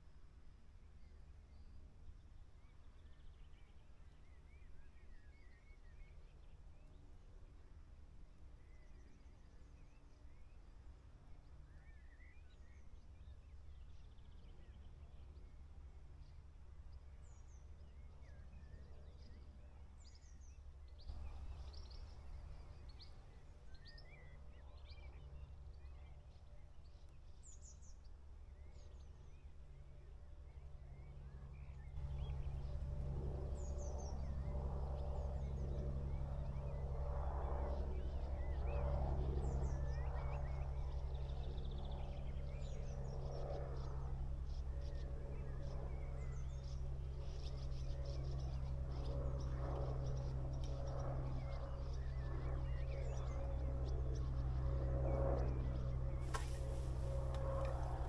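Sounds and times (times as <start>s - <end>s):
steady low hum: 14.0s - 58.0s
small birds chirping: 39.4s - 54.6s, 55.3s - 58.0s.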